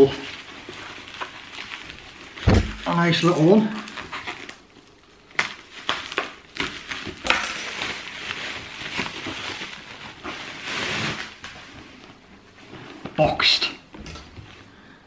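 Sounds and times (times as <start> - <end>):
paper and plastic crinkling: 0.0 - 14.7.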